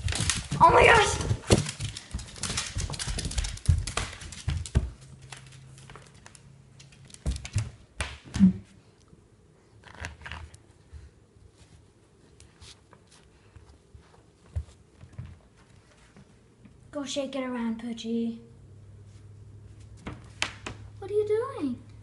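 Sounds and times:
dog claws clicking on floor: 0:00.0 - 0:08.3.

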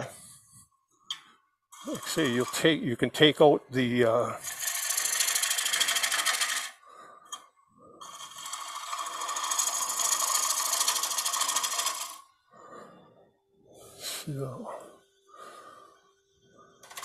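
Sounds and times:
gouge cutting wood on a lathe: 0:01.8 - 0:02.8, 0:04.4 - 0:06.8, 0:08.0 - 0:12.2.

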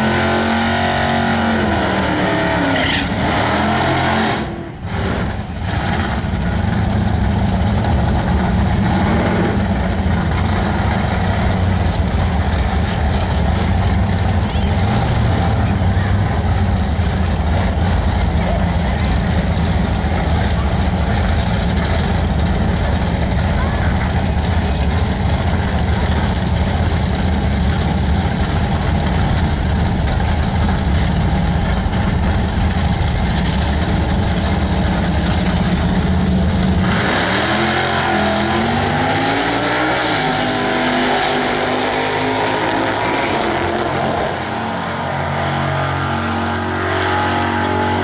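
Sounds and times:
drag cars idling: 0:00.0 - 0:46.7
cars accelerating through gears: 0:36.7 - 0:48.0.

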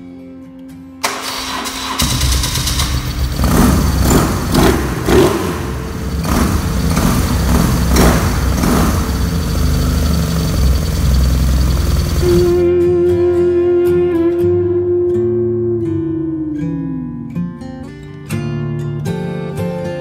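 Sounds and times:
motorcycle engine starting and idling: 0:01.0 - 0:12.6
throttle blips: 0:05.0 - 0:12.6.

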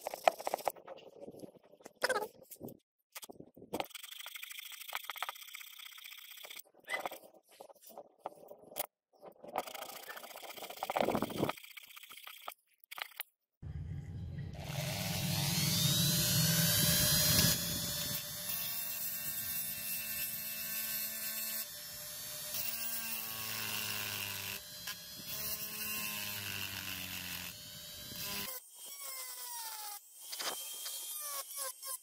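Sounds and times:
rotary tool grinding metal: 0:13.7 - 0:32.0.

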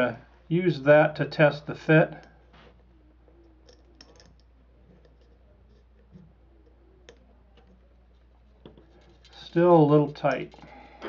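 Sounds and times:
low steady hum: 0:00.0 - 0:11.0
wire clicking in metal can: 0:03.6 - 0:04.5.

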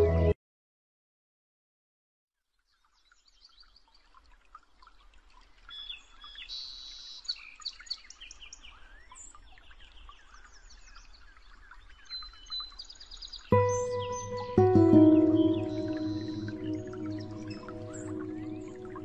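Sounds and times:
songbirds chirping and trilling: 0:05.6 - 0:19.0.

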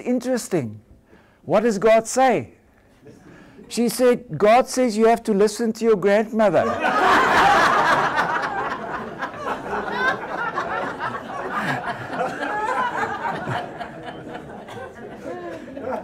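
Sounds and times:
audience laughing: 0:06.6 - 0:16.0.

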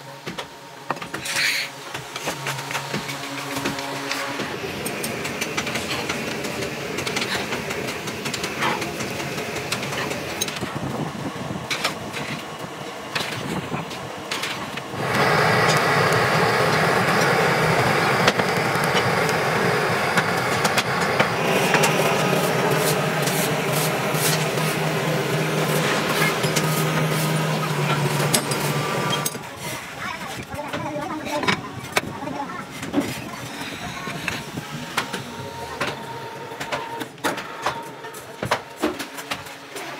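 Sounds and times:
fire rushing inside oven: 0:02.0 - 0:30.6.

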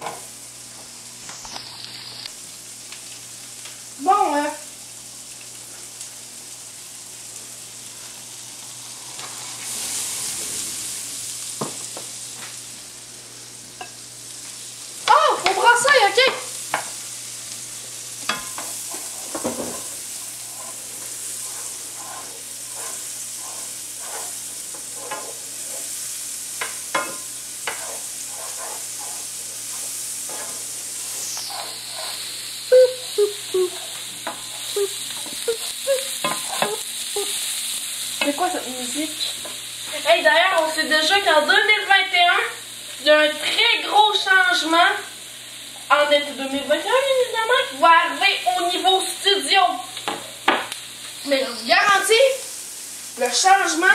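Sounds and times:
onions sizzling in oil: 0:00.0 - 0:53.9
spatula scraping a pan: 0:18.3 - 0:38.6
person's voice: 0:32.7 - 0:33.8, 0:34.7 - 0:36.1, 0:53.2 - 0:53.9.

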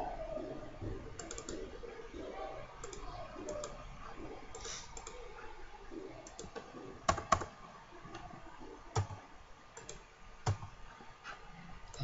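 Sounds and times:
computer mouse and keyboard clicks: 0:01.1 - 0:01.8, 0:02.8 - 0:03.8, 0:04.5 - 0:05.2, 0:06.2 - 0:08.3, 0:08.9 - 0:09.2, 0:09.8 - 0:10.8.

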